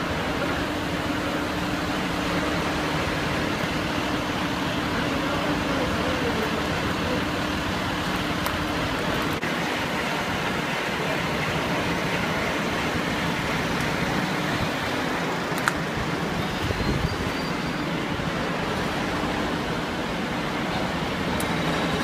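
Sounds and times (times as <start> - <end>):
idling engines rumble: 0.0 - 22.0.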